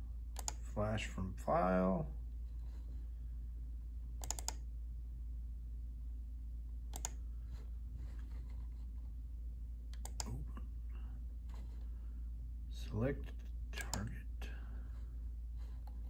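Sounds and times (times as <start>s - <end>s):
steady low hum: 0.0s - 16.0s
faint computer mouse clicks: 0.4s - 0.6s, 4.2s - 4.6s, 6.9s - 7.2s, 9.9s - 10.4s.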